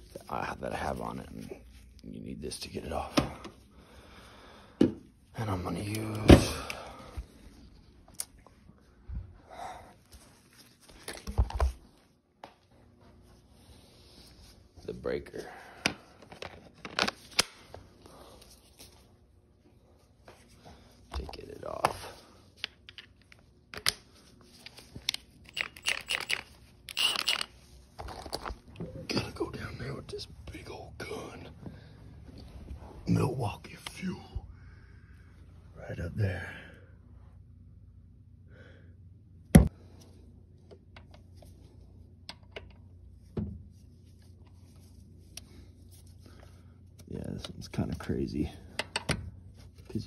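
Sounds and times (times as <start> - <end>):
impact wrench bursts: 25.5 - 27.5.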